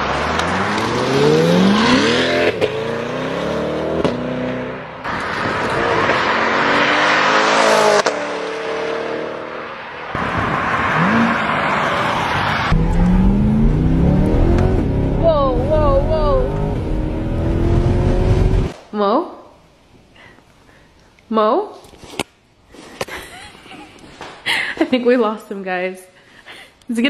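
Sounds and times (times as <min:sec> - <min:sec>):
sports car engine accelerating: 0:00.0 - 0:09.9, 0:10.8 - 0:18.8.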